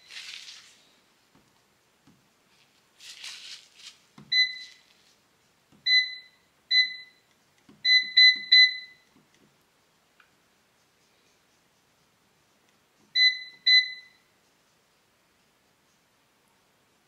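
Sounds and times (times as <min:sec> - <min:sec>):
brief rustle: 0:02.6 - 0:04.0
electronic control panel beeps: 0:04.3 - 0:04.8, 0:05.8 - 0:09.1, 0:13.2 - 0:14.3.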